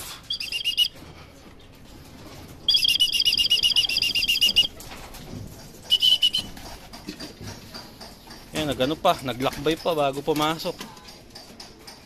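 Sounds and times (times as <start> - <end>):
pigeon wings flapping: 2.1 - 7.4.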